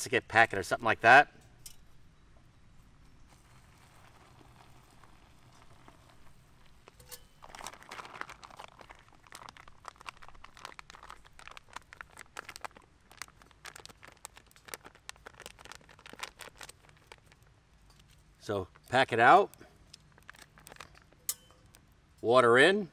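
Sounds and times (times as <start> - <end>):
food pouch crinkling: 3.6 - 21.9.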